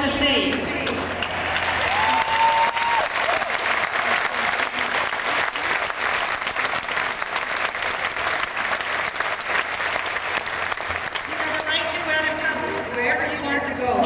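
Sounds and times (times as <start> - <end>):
crowd applauding and cheering: 1.1 - 12.0.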